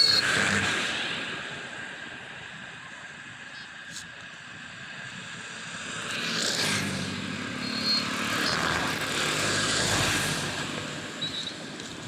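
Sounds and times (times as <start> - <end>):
vehicles passing: 0.0 - 12.0
motor scooter: 5.2 - 12.0.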